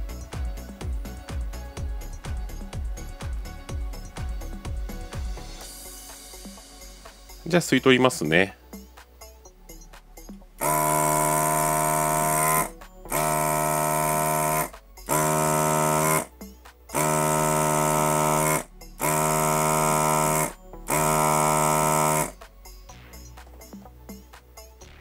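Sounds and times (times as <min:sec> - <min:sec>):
desoldering vacuum pump buzzing: 0:10.6 - 0:22.4.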